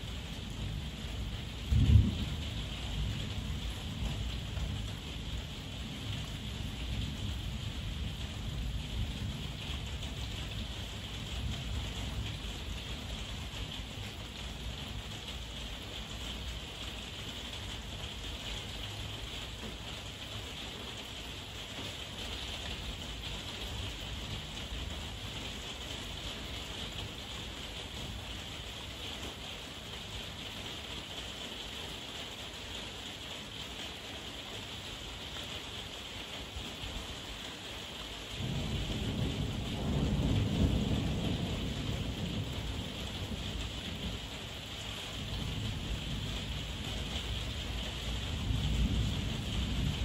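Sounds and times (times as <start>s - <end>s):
heavy rain falling: 0.0s - 50.0s
thunder rumbling: 0.1s - 15.1s, 38.4s - 50.0s.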